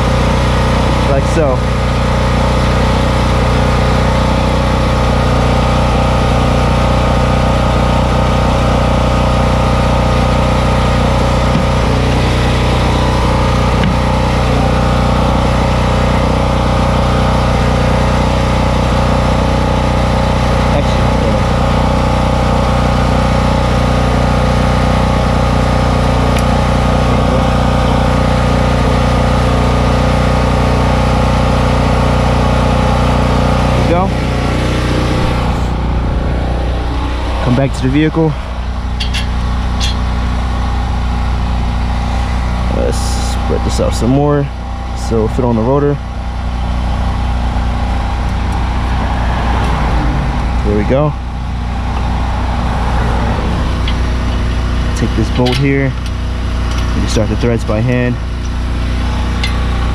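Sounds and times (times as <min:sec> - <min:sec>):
engine idling: 0:00.0 - 0:59.9.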